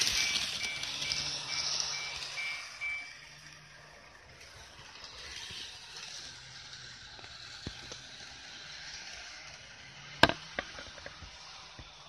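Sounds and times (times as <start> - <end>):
model train hiss and hum: 3.3 - 10.2, 10.9 - 12.0.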